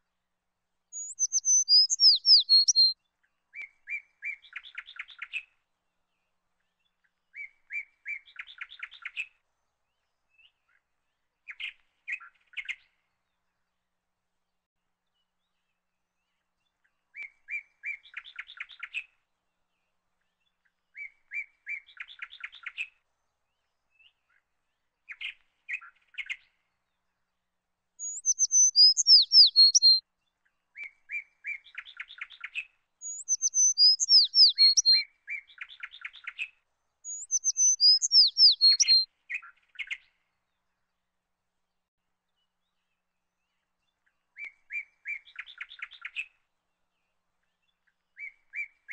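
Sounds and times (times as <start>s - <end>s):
bird singing whistled notes: 0.9s - 3.0s, 3.6s - 5.4s, 7.3s - 9.3s, 17.2s - 19.0s, 21.0s - 22.9s, 28.0s - 30.0s, 30.8s - 40.2s, 44.4s - 46.3s, 48.2s - 48.9s
sparrows chirping: 1.0s - 2.9s, 28.0s - 30.0s, 31.5s - 36.4s, 37.1s - 39.0s.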